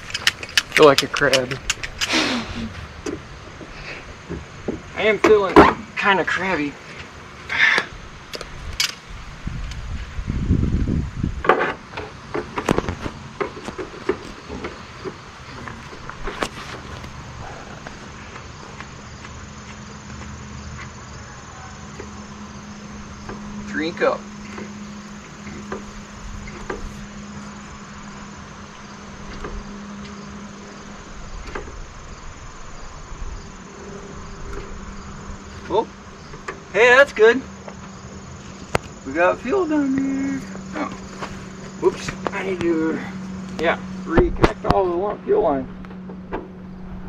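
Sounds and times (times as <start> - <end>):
outdoor hiss: 0.0 - 45.6
insects buzzing: 0.0 - 47.0
low hum: 15.3 - 36.8, 37.4 - 47.0.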